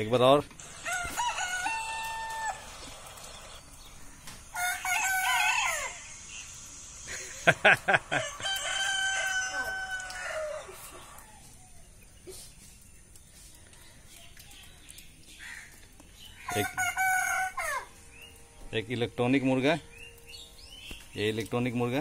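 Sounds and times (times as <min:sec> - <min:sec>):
rooster crowing: 0:00.6 - 0:03.0, 0:04.5 - 0:06.4, 0:07.6 - 0:11.6, 0:16.5 - 0:17.9
rooster crowing from phone: 0:00.7 - 0:02.7, 0:04.6 - 0:06.0, 0:08.1 - 0:10.7.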